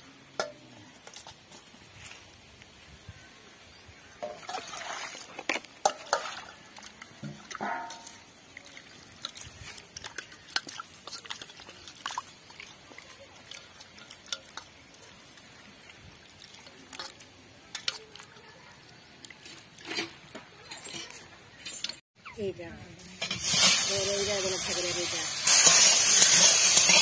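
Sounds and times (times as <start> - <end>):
water splashing in a bowl: 4.2 - 20.7.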